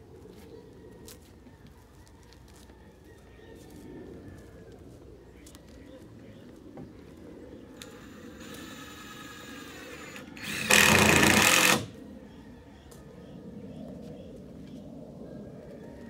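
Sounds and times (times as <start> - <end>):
power tool whining: 7.8 - 12.0.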